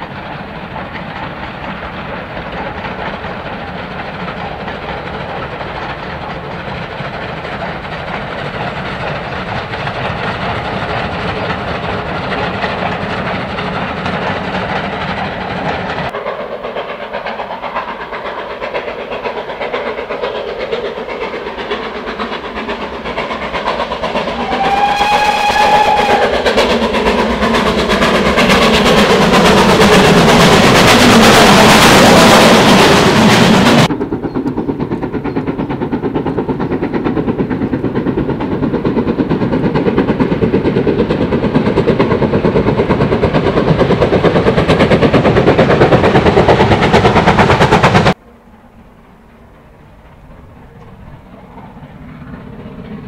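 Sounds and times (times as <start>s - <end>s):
steam locomotive exhaust beating: 0.0s - 53.0s
steam locomotive passing: 0.0s - 53.0s
steam whistle: 24.3s - 26.6s.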